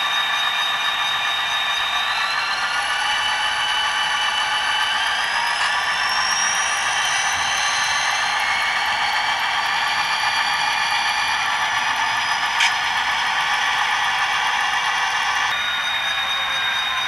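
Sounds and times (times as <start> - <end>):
model diesel engine sound: 0.0 - 17.0
wheel and track clatter: 0.0 - 17.0
sharp click: 12.6 - 12.8.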